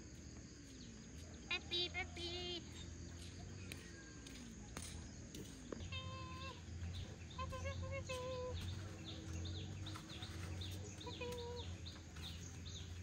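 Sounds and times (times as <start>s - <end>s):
high bird chirps: 5.7s - 13.0s
farmyard animal calls: 5.8s - 13.0s.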